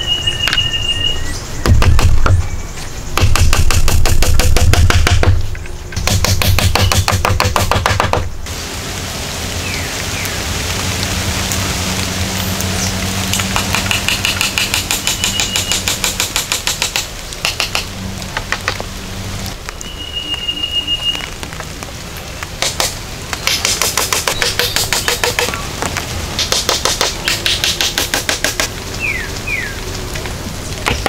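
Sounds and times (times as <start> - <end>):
rain hiss: 0.0 - 31.0
brief high whistle: 19.8 - 21.2.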